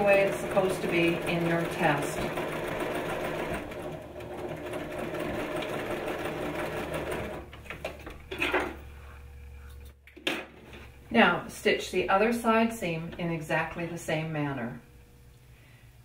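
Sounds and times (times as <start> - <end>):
sewing machine stitching: 0.0 - 7.5.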